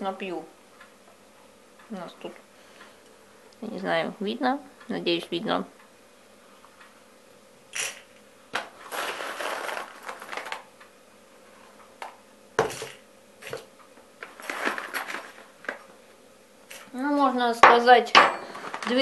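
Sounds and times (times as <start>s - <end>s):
coffee beans rattling into grinder: 7.8s - 10.7s, 14.2s - 15.8s.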